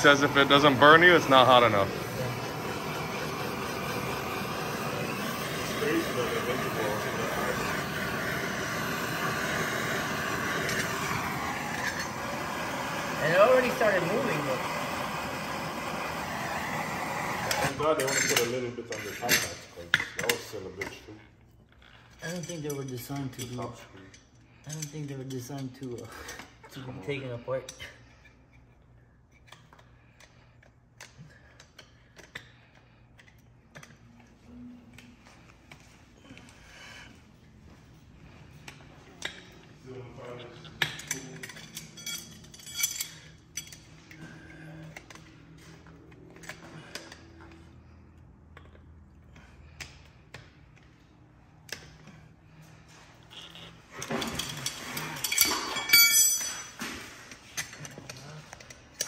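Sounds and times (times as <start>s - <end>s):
hand tools clinking and scraping: 22.0s - 28.8s, 40.2s - 47.3s, 52.9s - 59.0s
ringing metal clang: 55.3s - 56.8s.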